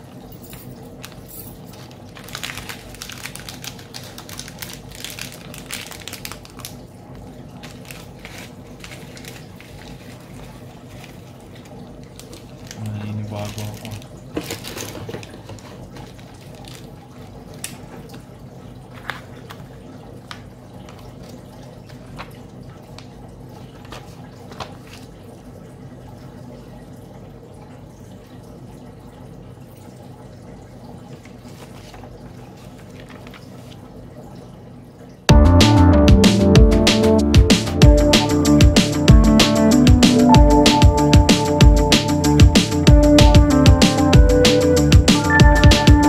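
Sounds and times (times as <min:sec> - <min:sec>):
paper rustling: 0:01.0 - 0:06.8, 0:07.5 - 0:18.2, 0:18.9 - 0:22.4, 0:23.6 - 0:25.2, 0:31.1 - 0:34.0.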